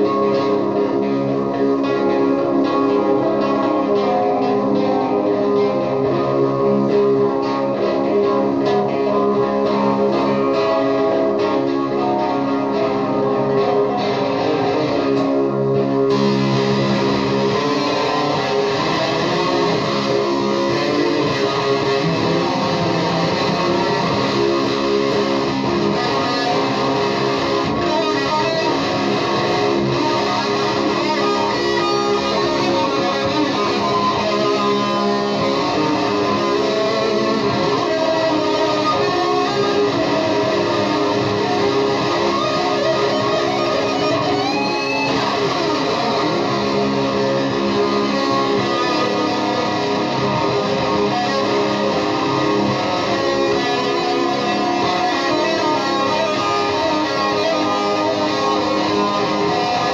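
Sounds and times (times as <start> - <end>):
electric guitar noise loop: 0.0 - 59.9.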